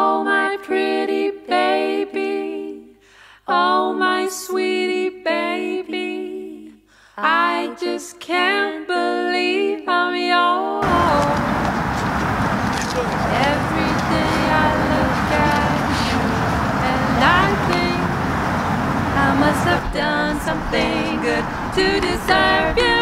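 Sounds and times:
person singing wordless melody: 0:10.8 - 0:12.3, 0:13.0 - 0:23.0.

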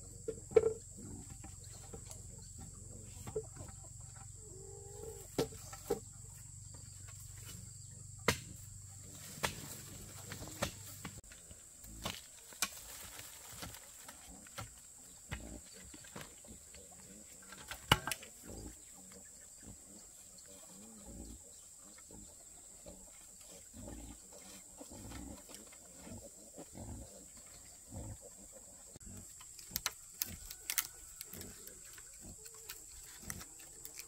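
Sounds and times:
pig grunting: 0:00.0 - 0:05.4, 0:18.3 - 0:29.4.

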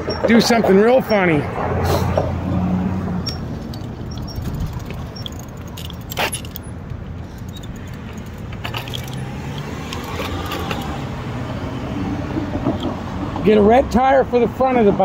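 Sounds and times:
passing traffic: 0:00.0 - 0:15.0
wind: 0:00.0 - 0:15.0
bicycle rattling: 0:03.1 - 0:11.2.

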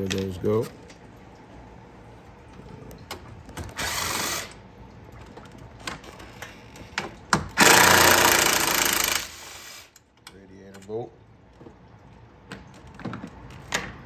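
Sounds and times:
cordless power tool running: 0:03.8 - 0:04.5, 0:07.6 - 0:09.8.

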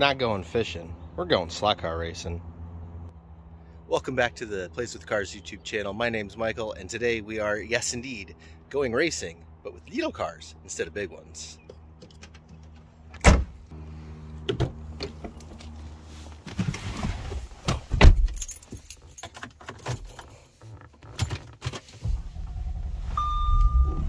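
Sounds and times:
car door shutting: 0:13.2 - 0:13.6
car trunk slamming: 0:13.2 - 0:13.6
keys jangling: 0:18.2 - 0:20.5
car engine starting: 0:21.7 - 0:24.0
dashboard chime: 0:23.2 - 0:24.0.

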